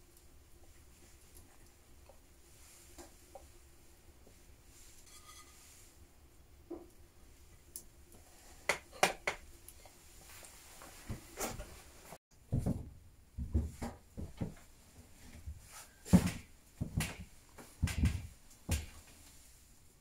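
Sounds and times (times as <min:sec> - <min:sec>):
footsteps on wooden floorboards: 0:12.5 - 0:14.7, 0:15.4 - 0:17.2.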